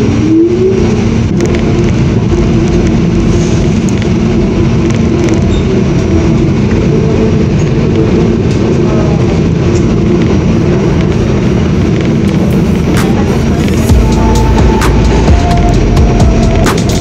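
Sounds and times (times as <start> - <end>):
rising whine: 0.0 - 17.0
train wheels rumbling on rail: 0.0 - 17.0.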